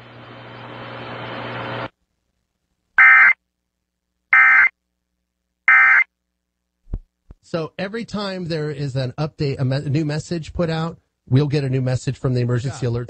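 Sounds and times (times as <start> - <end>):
broadcast hiss with low hum: 0.0 - 13.0
emergency alert data tones: 3.0 - 3.4, 4.4 - 4.7, 5.7 - 6.1.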